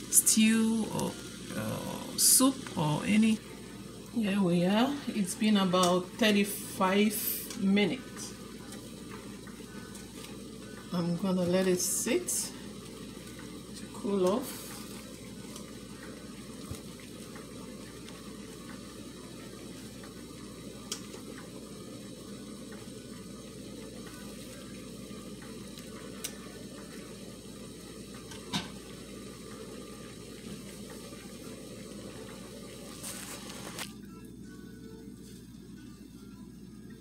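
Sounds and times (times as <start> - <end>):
low rushing kitchen noise: 0.0 - 37.0
faint clicks and taps: 20.9 - 21.5.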